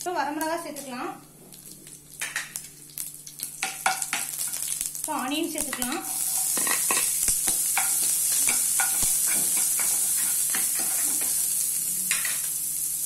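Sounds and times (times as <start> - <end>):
onion sizzling in hot oil: 0.0 - 13.0
spoon scraping and stirring: 7.8 - 11.4.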